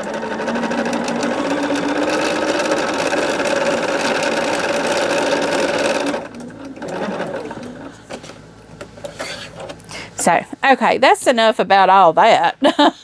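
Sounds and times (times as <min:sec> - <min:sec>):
sewing machine stitching: 0:00.0 - 0:07.9.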